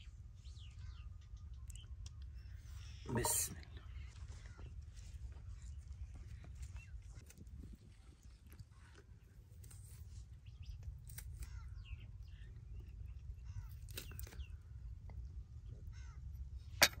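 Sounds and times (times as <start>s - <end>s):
knife peeling shells: 10.7s - 11.6s, 13.6s - 14.5s
faint bird calls: 15.6s - 16.9s.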